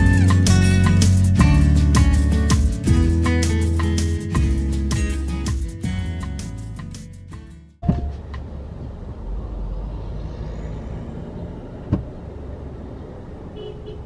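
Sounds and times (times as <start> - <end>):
road traffic rumble: 7.8 - 14.0.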